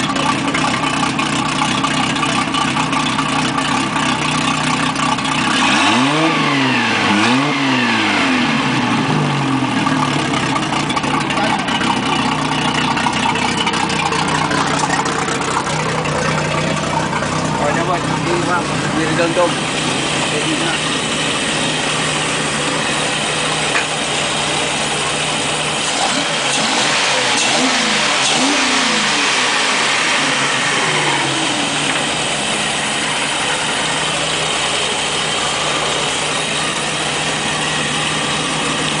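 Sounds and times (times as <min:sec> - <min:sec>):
boat engine idling and revving: 0:00.0 - 0:39.0.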